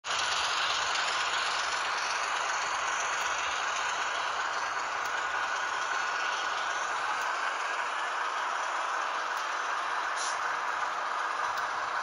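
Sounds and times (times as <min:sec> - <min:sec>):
model train wheels rattling on rails: 0:00.1 - 0:12.0.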